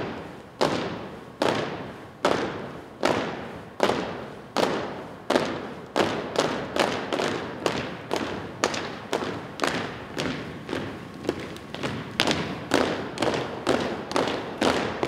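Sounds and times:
feet stomping on wooden floor: 5.5s - 15.0s.

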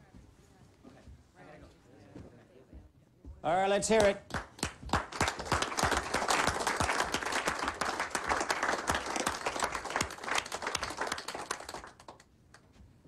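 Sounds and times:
people applauding: 4.0s - 12.7s.

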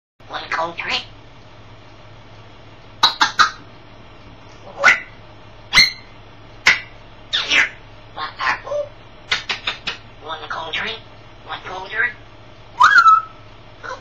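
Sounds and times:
parrot squawking: 0.3s - 1.1s, 3.0s - 3.7s, 4.6s - 12.2s, 12.8s - 14.0s.

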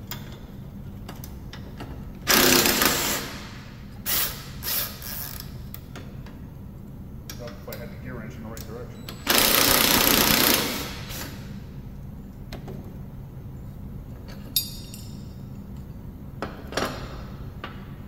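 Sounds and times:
impact wrench hammering: 2.3s - 5.0s, 9.2s - 11.4s.

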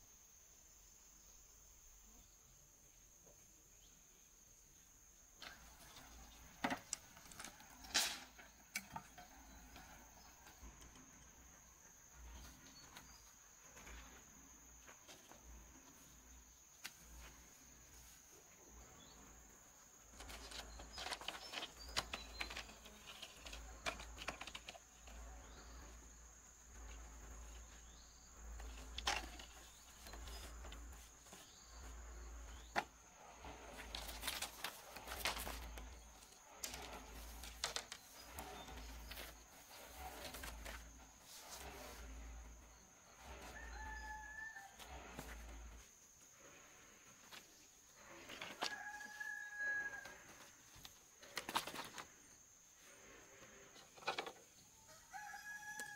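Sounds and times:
insects chirring: 0.0s - 55.9s
bamboo strips clattering: 5.4s - 11.2s, 20.0s - 46.0s, 47.1s - 52.2s.

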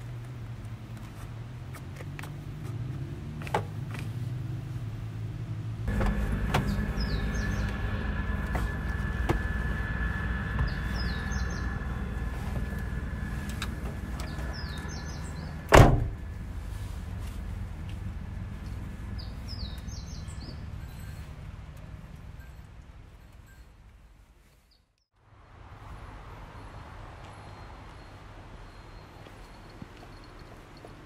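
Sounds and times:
car engine running with whine: 2.1s - 21.8s
car door shutting: 5.9s - 7.4s, 15.6s - 16.2s
birds chirping: 5.9s - 21.4s.

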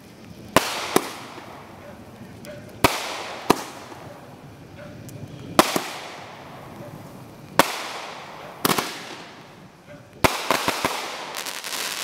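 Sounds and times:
fireworks bangs: 0.0s - 12.0s.

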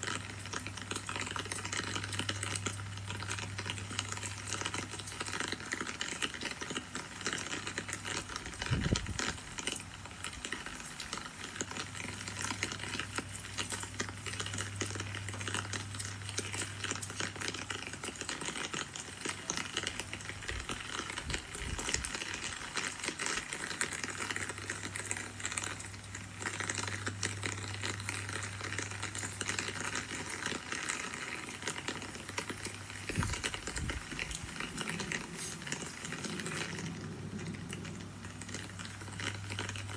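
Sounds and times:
steady rain falling: 0.0s - 39.9s
low hum: 32.6s - 39.9s.

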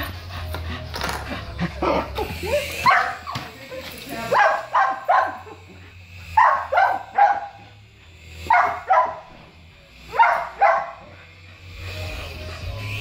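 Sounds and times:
small dog barking: 4.3s - 5.5s, 6.4s - 7.6s, 8.5s - 9.3s, 10.2s - 11.0s.

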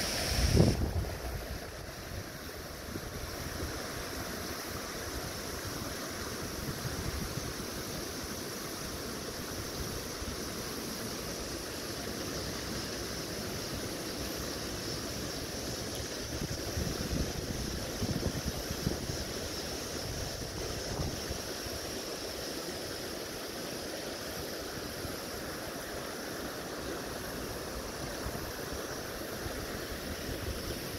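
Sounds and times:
creek water flowing: 0.0s - 30.9s
wind buffeting microphone: 0.3s - 1.6s.

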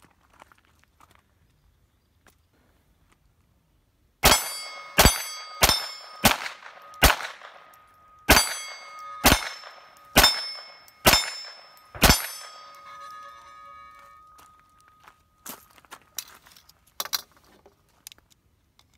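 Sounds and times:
pistol shots: 4.2s - 12.6s
steel plate target clanging: 4.2s - 15.0s.

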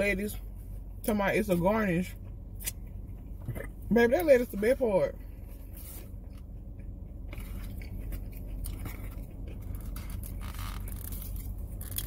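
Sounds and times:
low car cabin hum: 0.0s - 12.0s
chewing: 5.7s - 12.0s.

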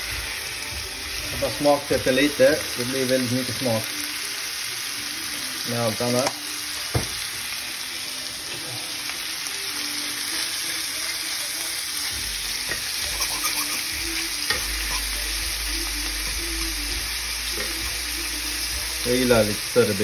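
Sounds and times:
meat sizzling in a frying pan: 0.0s - 20.0s
fork scraping a pan: 12.6s - 15.3s.

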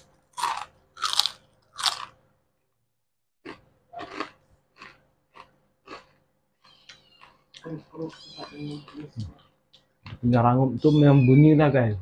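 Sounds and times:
fritter crunching while chewed: 0.0s - 2.2s, 3.4s - 9.9s.

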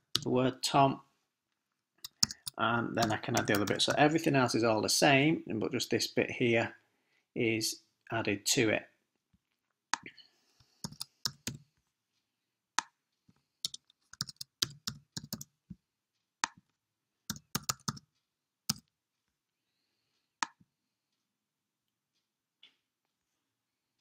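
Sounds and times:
typing on computer keyboard: 2.0s - 4.0s, 10.8s - 11.6s, 13.6s - 15.5s, 17.3s - 18.1s.

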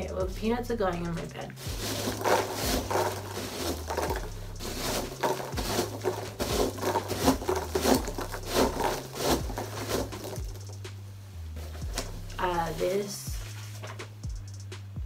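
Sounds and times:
packing peanuts rustling: 1.5s - 10.8s.

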